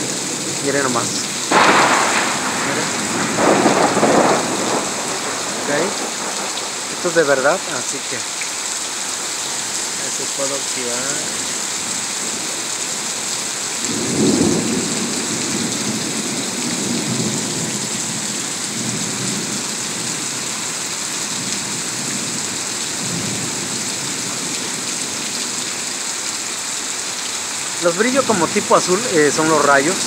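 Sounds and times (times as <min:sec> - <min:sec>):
heavy rain pouring: 0:00.0 - 0:30.0
thunder clap rumbling: 0:01.0 - 0:07.5, 0:13.9 - 0:18.2.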